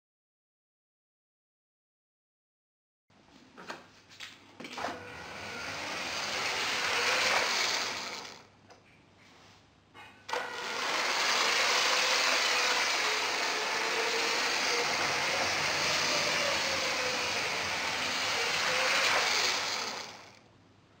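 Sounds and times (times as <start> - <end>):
toy train motor whirring: 5.4 - 8.4, 10.3 - 20.4.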